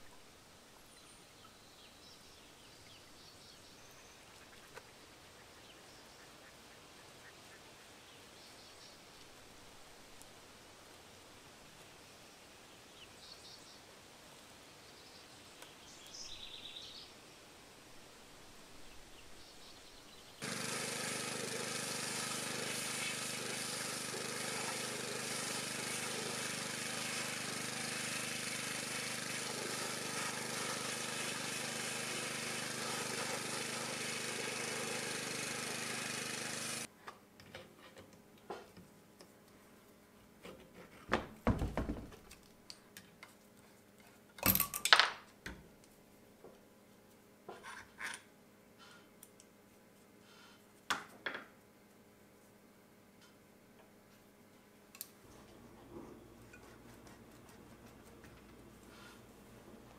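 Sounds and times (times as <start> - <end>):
pressure washer spraying: 20.4 - 36.9
pump humming: 20.4 - 36.9
metal parts knocking and clinking: 44.4 - 45.1.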